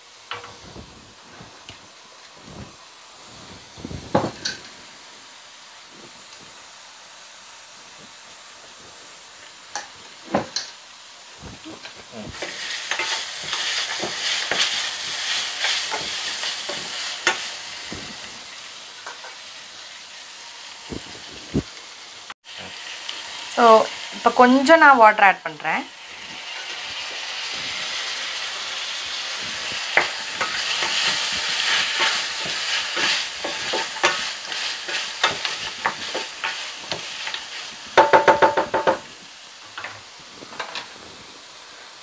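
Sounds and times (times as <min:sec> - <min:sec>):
meat and onions sizzling in pan: 0:00.0 - 0:42.0
utensil scraping against pan: 0:29.6 - 0:37.7.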